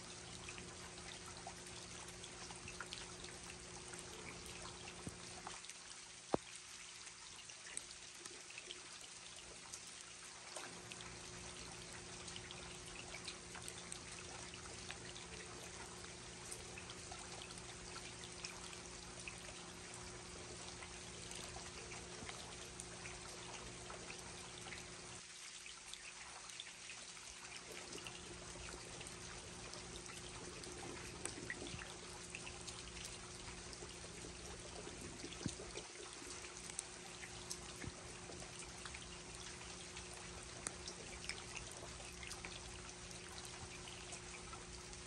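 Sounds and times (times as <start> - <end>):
faint low hum: 0.0 - 45.0
water trickling: 0.0 - 45.0
rain falling: 27.7 - 45.0.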